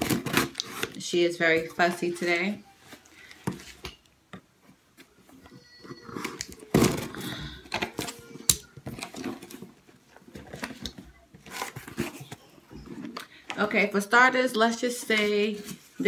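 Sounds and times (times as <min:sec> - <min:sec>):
fussing and whimpering: 0:05.4 - 0:07.6.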